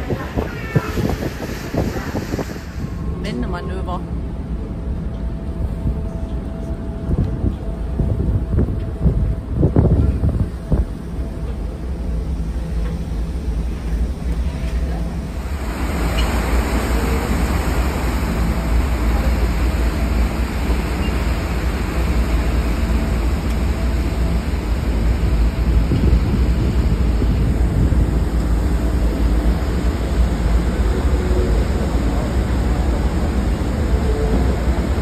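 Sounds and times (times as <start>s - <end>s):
rushing hiss of churned water: 0.0s - 3.8s, 13.4s - 35.0s
ferry engines droning: 0.0s - 35.0s.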